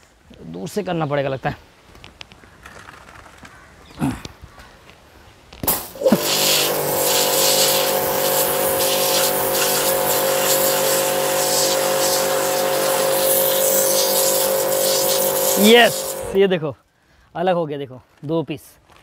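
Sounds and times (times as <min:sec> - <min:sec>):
pressure washer motor hum: 0:05.6 - 0:16.4
water jet hissing on brick: 0:05.6 - 0:16.4.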